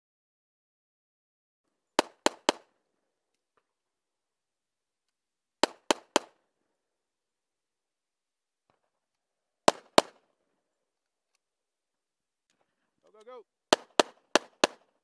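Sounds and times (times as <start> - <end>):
pistol shots: 2.0 - 2.8, 5.6 - 6.5, 9.6 - 10.4, 13.7 - 15.0.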